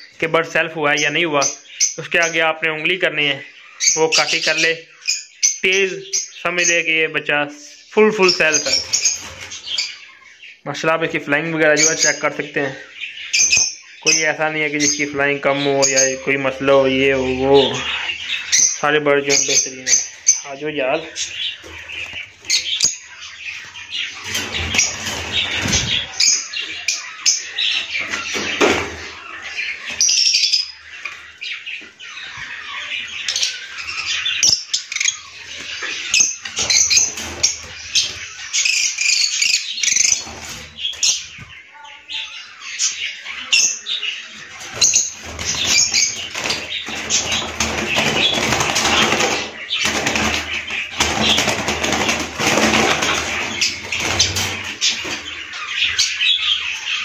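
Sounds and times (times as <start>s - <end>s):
birds chirping and calling: 0.0s - 57.0s
wings flapping: 24.2s - 26.2s, 44.7s - 55.4s.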